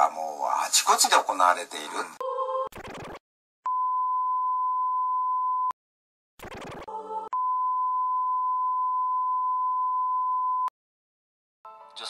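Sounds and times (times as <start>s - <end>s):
electronic beep tone: 2.7s - 5.7s, 6.5s - 10.7s.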